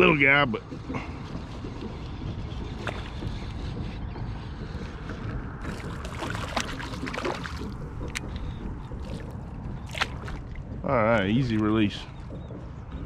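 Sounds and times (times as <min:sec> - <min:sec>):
wind rumble on microphone: 0:00.0 - 0:13.0
sharp water splashes: 0:05.6 - 0:08.3, 0:09.0 - 0:10.6.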